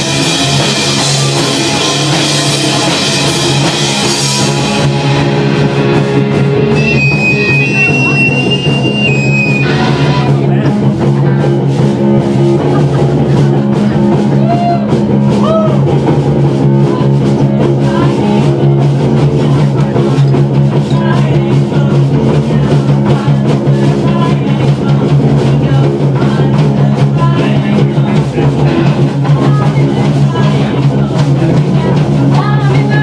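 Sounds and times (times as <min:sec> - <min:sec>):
drum kit beating: 0:00.0 - 0:33.0
punk rock band playing live: 0:00.0 - 0:33.0.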